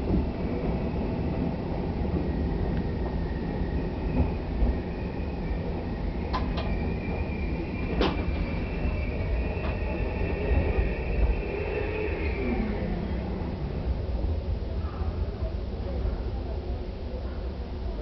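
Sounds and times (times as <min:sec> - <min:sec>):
train rumbling: 0:00.0 - 0:18.0.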